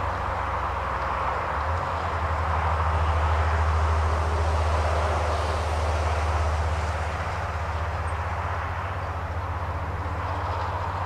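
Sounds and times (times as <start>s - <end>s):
tractor diesel engine under load: 0.0s - 11.0s.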